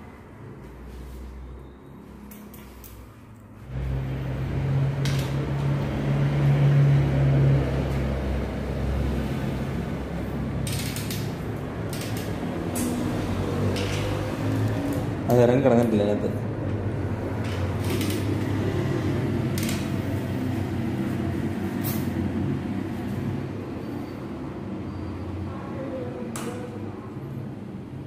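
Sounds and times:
bicycle wheel hardware clicks and rattles: 10.6 - 13.1, 13.7 - 14.2, 17.4 - 18.5, 19.4 - 20.2.

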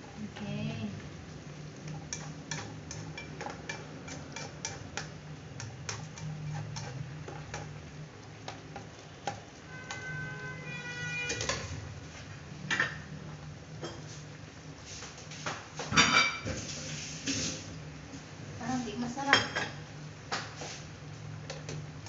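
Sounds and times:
spatula scraping a wok: 1.9 - 12.4.

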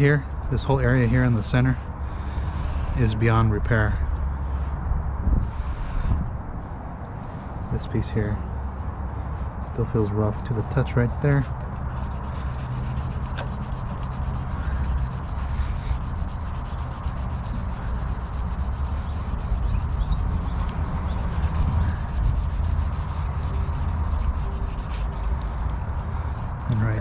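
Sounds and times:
sandpaper rubbing on plastic: 7.2 - 27.0.

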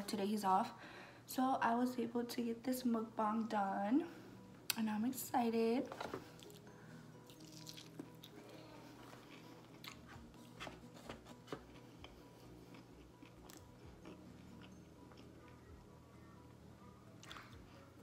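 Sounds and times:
person chewing crispy food: 6.4 - 10.8, 11.6 - 15.7.

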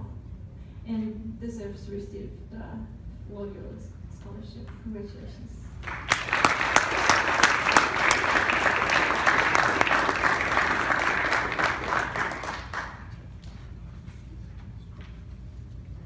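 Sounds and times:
audience applauding: 5.8 - 13.3.

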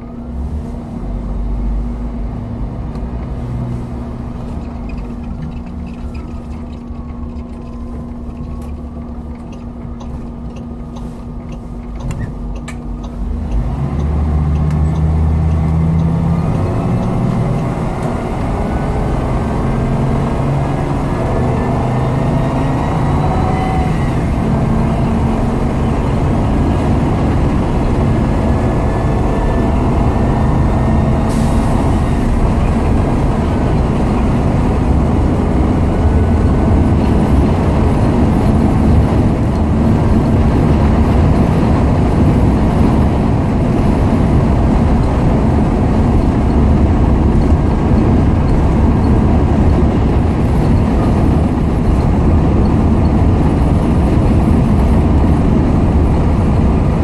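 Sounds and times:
bus engine running: 0.0 - 57.0
road noise: 0.0 - 57.0
wind noise: 14.7 - 57.0.

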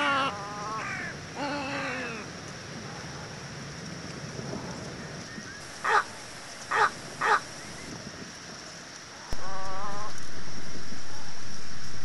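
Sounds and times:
egret harsh calls: 6.7 - 7.4.

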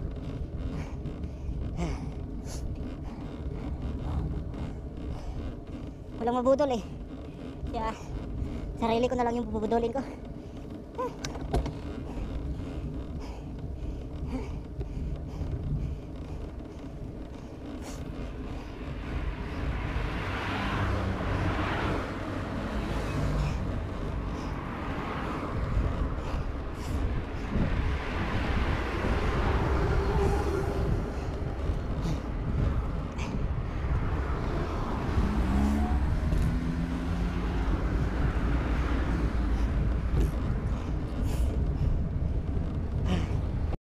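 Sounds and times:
cars passing: 0.0 - 43.8
wind rushing over camera: 0.0 - 43.8
rising engine note: 34.1 - 39.6.

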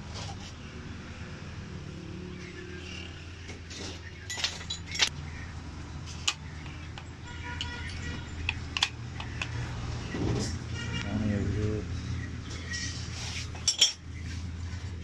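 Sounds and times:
metal tools clinking: 4.3 - 5.1, 13.5 - 14.0.

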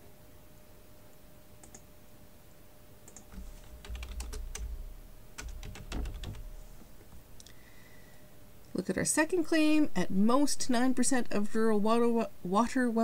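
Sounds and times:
keyboard typing: 1.6 - 1.8, 3.1 - 6.9.

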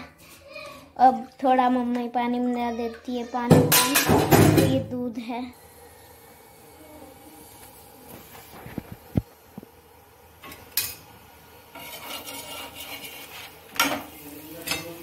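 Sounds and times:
utensils knocking against pan: 3.5 - 4.8, 11.7 - 15.0
utensil scraping pan: 11.7 - 15.0.

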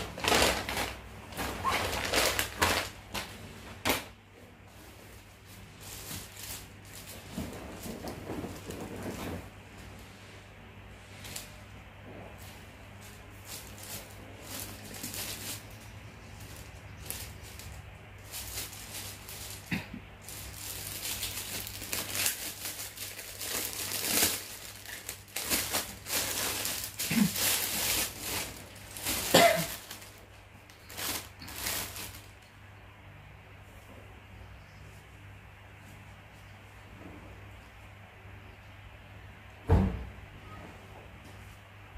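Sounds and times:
plastic packaging crinkling: 0.0 - 4.0, 5.0 - 9.5, 12.4 - 32.5.

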